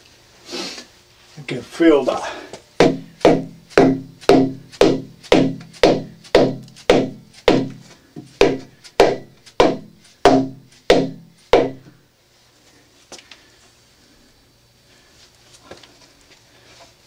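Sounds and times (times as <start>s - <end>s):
hammer knocking on plastic pipe: 2.8s - 11.9s.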